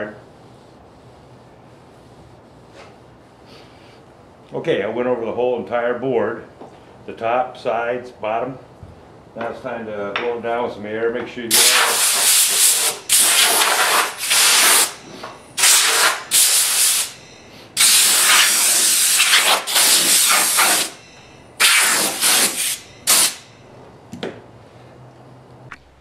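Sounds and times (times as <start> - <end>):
air blow gun hissing: 11.5 - 15.0, 15.6 - 21.0, 21.6 - 23.5.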